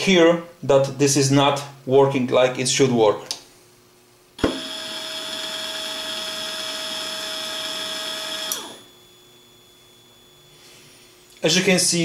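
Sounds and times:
gear motor whining: 4.4s - 9.1s
motor switch click: 8.4s - 8.8s.

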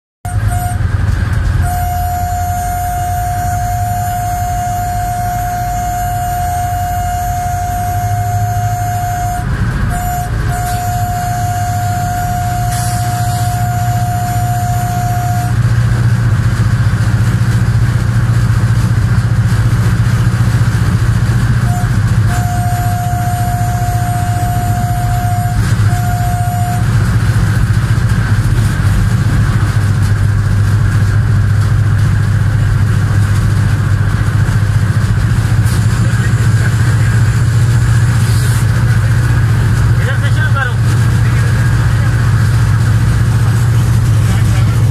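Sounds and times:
steady high tone: 0.2s - 1.0s, 1.6s - 15.6s, 21.6s - 27.0s
locomotive engine low drone: 0.2s - 44.9s.

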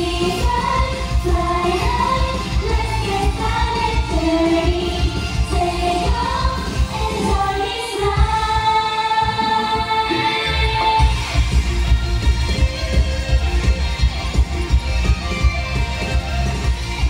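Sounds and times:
girl group singing in unison: 0.0s - 11.1s
pop backing track with bass beat: 0.0s - 17.0s.

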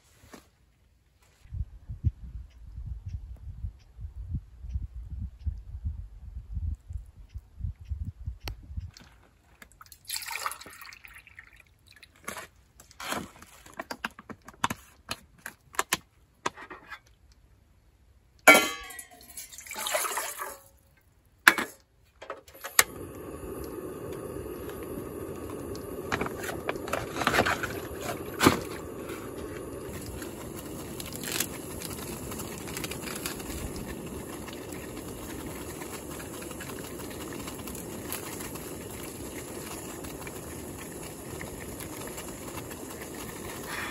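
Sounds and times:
water poured from a bottle: 9.7s - 12.3s, 19.2s - 20.7s, 24.6s - 43.9s
gas flame hissing: 22.5s - 43.9s.

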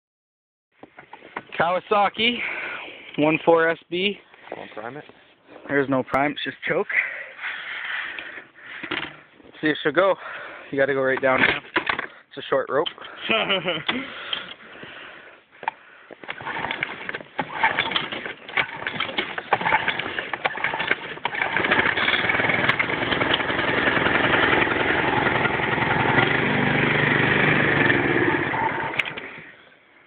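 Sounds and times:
lawn mower engine starting: 16.2s - 29.6s.

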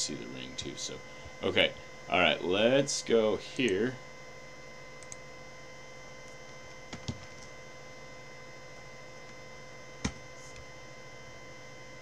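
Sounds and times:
steady electrical hum: 0.0s - 12.0s
computer mouse clicks: 5.0s - 5.2s.

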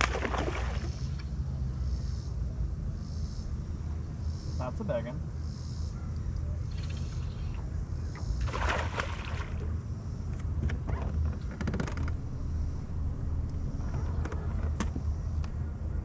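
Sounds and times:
wind rumbling on microphone: 6.5s - 16.0s.

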